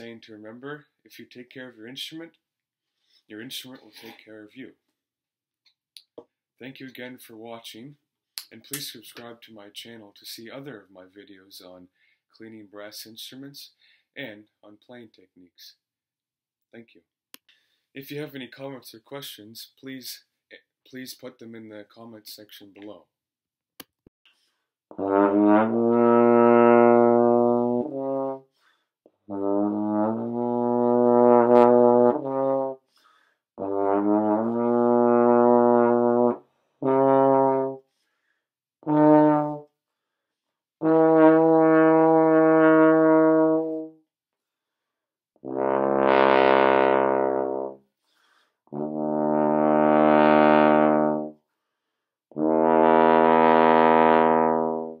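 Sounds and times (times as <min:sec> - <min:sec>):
trombone playing low notes: 0:24.9 - 0:28.4, 0:29.3 - 0:32.8, 0:33.6 - 0:37.8, 0:38.8 - 0:39.6, 0:40.8 - 0:44.0, 0:45.4 - 0:47.8, 0:48.7 - 0:51.4, 0:52.3 - 0:55.0.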